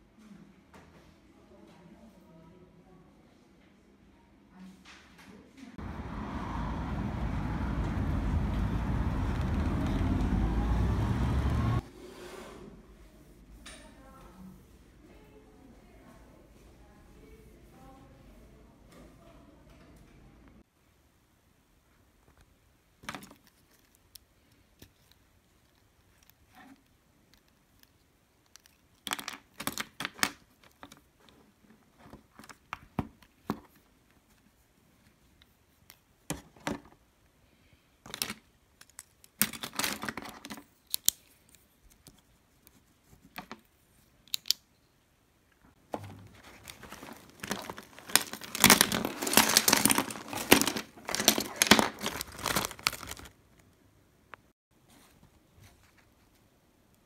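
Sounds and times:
pens pouring out rattling: 0:46.6 - 0:53.3.

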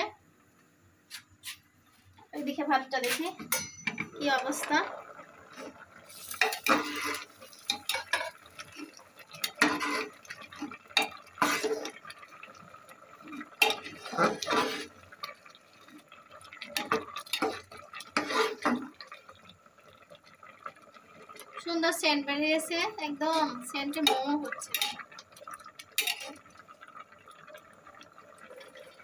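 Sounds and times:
water boiling: 0:01.3 - 0:29.0
metal spatula scraping a pot: 0:05.6 - 0:12.0, 0:13.5 - 0:15.0, 0:16.8 - 0:18.9, 0:23.2 - 0:25.0, 0:26.0 - 0:26.4.

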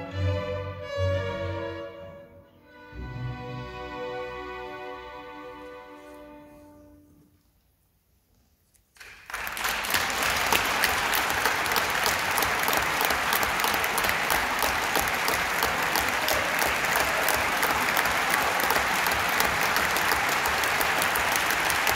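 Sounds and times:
audience applause: 0:09.0 - 0:21.9.

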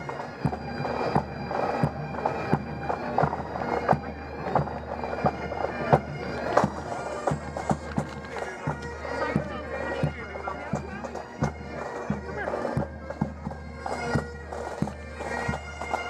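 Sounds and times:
bagpipes over steady drones: 0:00.0 - 0:16.0.

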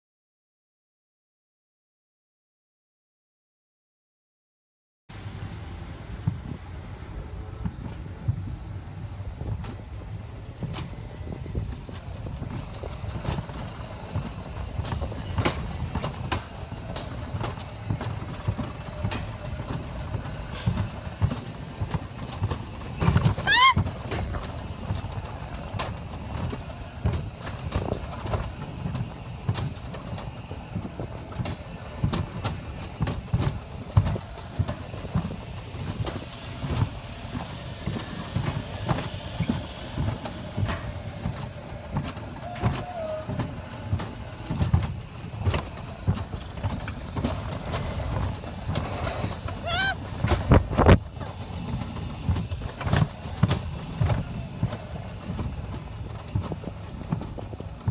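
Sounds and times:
coaster cart rumbling on track: 0:05.1 - 0:57.9
rising squeal: 0:22.8 - 0:24.8.

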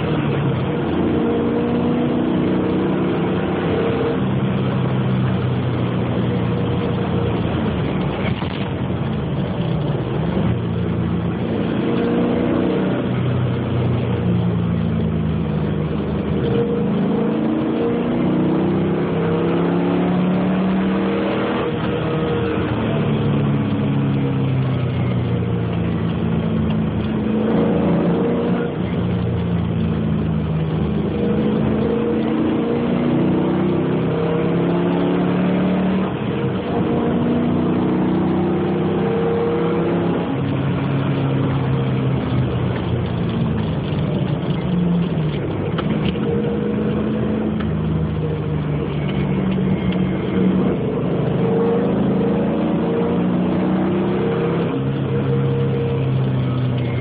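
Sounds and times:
car engine pulling hard: 0:00.0 - 0:57.0
tyre and road noise: 0:00.0 - 0:57.0.

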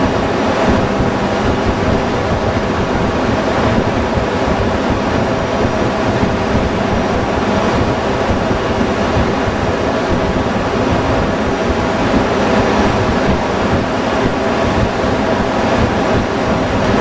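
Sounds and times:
ship engine-room machinery: 0:00.0 - 0:17.0.

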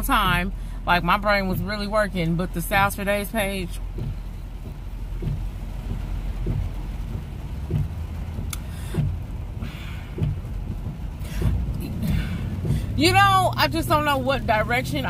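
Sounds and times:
car cabin road rumble: 0:00.0 - 0:15.0
click: 0:08.5 - 0:08.7.

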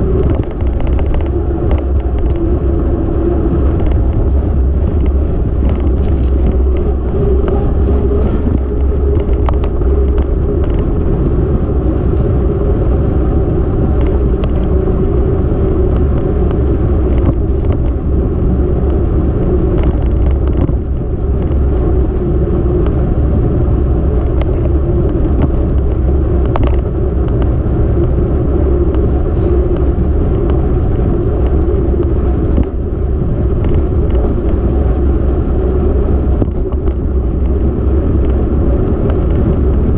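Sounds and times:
road noise: 0:00.0 - 0:39.9
wind buffeting microphone: 0:00.0 - 0:39.9
faint clicks and knocks: 0:00.1 - 0:02.6, 0:03.6 - 0:11.0, 0:13.9 - 0:14.8, 0:15.8 - 0:18.0, 0:18.8 - 0:22.0, 0:24.1 - 0:28.3, 0:36.3 - 0:39.9.

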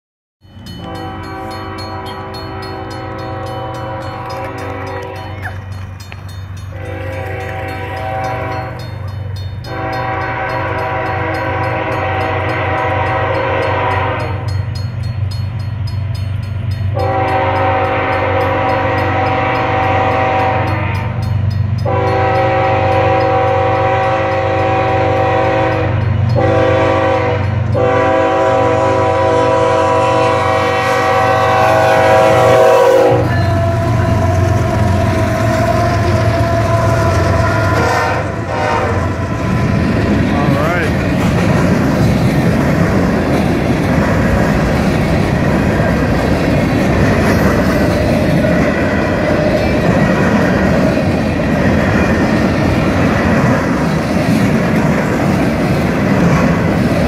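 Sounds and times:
train rolling past: 0:00.4 - 0:57.0
locomotive engine rumble: 0:00.5 - 0:57.0
locomotive air horn blasts: 0:00.8 - 0:05.6, 0:06.7 - 0:08.9, 0:09.6 - 0:14.6, 0:16.9 - 0:21.2, 0:21.8 - 0:40.9.

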